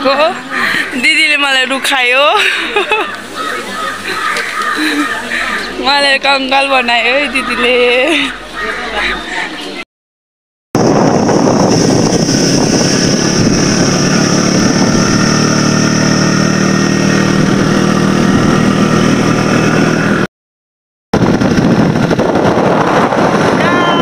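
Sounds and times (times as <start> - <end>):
small motorbike engine running: 10.8 - 20.2
road and air rush: 10.8 - 20.3, 21.2 - 24.0.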